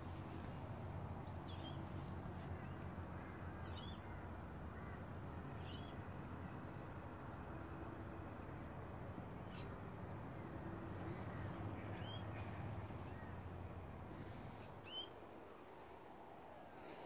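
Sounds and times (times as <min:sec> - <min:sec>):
steady low hum: 0:00.0 - 0:17.0
birds calling: 0:01.0 - 0:06.8, 0:09.3 - 0:15.7.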